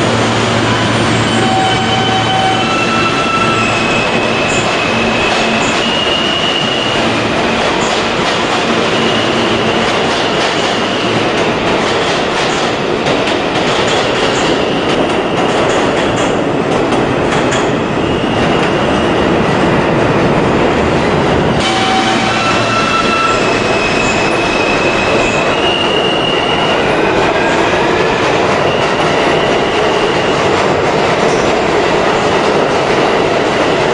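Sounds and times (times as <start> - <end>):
train wheels rumbling on rail: 0.0 - 33.9
high wheel squeals: 0.6 - 7.1, 21.6 - 27.0.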